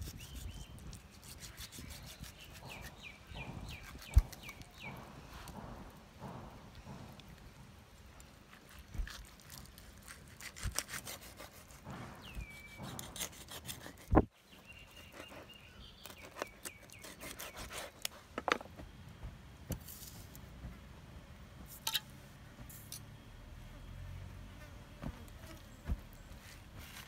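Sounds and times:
knife scraping fish: 0.0s - 2.9s, 8.5s - 11.8s, 12.6s - 14.2s, 15.1s - 18.3s.

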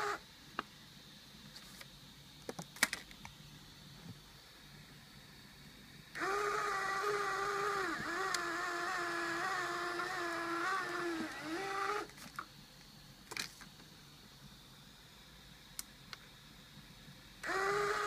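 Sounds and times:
small electric motor whining: 0.0s - 0.2s, 6.2s - 12.1s, 17.4s - 18.0s.

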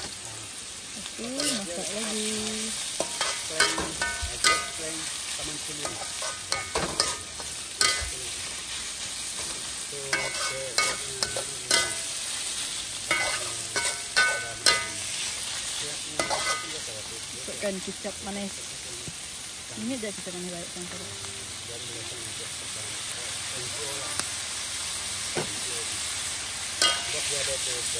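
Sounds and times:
food sizzling in a wok: 0.0s - 27.9s
metal spatula scraping pan: 1.2s - 1.9s, 2.7s - 8.2s, 9.4s - 12.2s, 13.1s - 15.3s, 16.2s - 16.8s.

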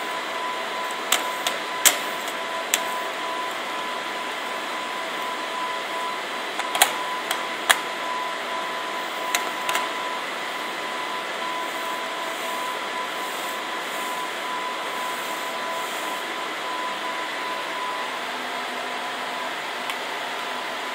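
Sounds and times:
faint high whine: 0.0s - 20.9s
sharp clicks: 6.6s - 7.8s
fan-like hiss: 8.8s - 16.6s.

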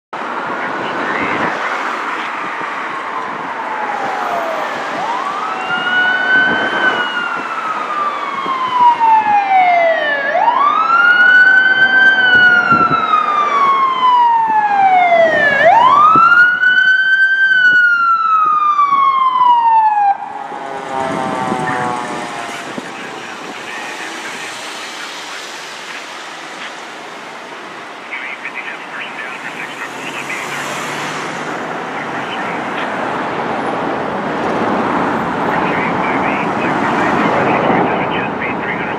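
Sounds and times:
traffic and engine noise: 0.1s - 38.9s
emergency siren wailing: 0.2s - 38.9s.

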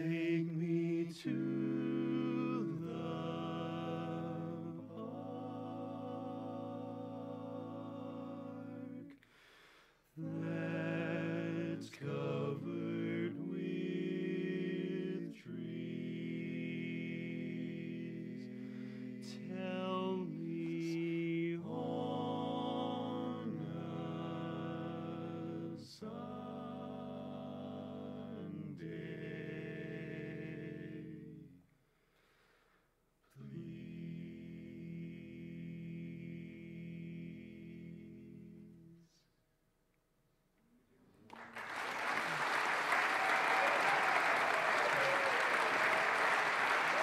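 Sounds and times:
barbershop quartet singing: 0.0s - 9.2s, 10.2s - 31.6s, 33.4s - 38.8s.

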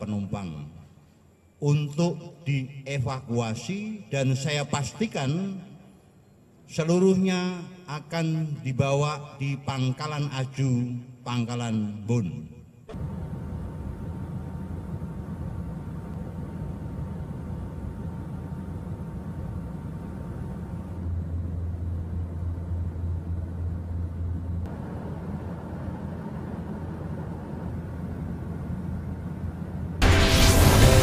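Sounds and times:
aircraft engine drone: 12.9s - 31.0s.

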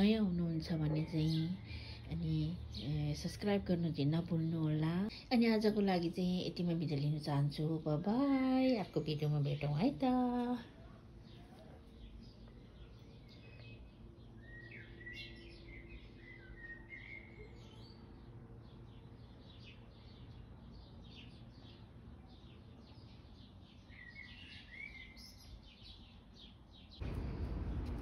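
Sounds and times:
birds chirping: 0.0s - 28.0s
steady low hum: 27.0s - 28.0s.

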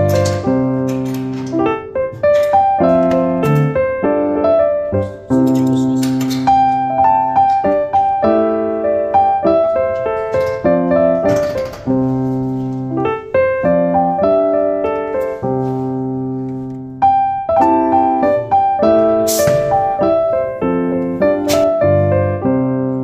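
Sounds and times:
solo piano music: 0.0s - 23.0s.

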